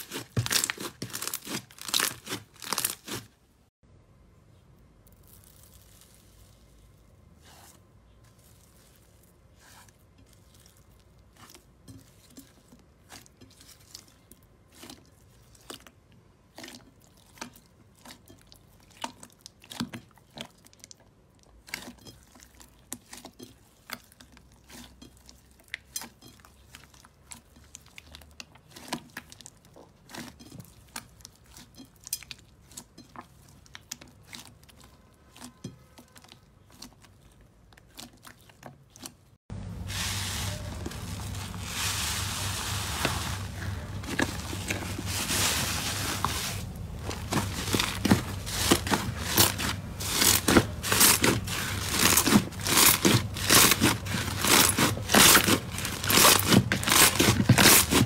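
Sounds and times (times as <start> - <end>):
slime crackling and popping: 0.0 - 3.2.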